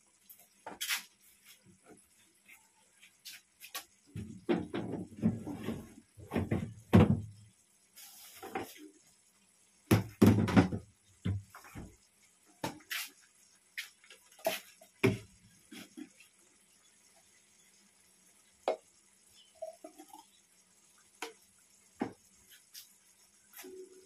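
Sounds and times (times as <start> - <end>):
sauce simmering in a frying pan: 0.0 - 5.2, 6.0 - 24.0.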